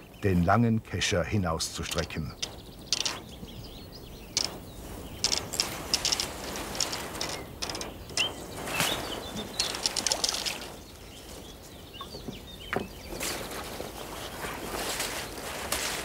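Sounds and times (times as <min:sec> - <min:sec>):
birds chirping: 0:00.0 - 0:16.0
fish splashing at water surface: 0:09.6 - 0:10.8.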